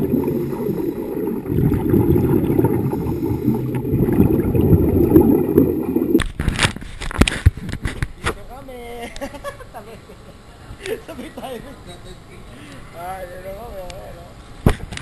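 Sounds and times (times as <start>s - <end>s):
underwater regulator bubbling: 0.0s - 6.3s.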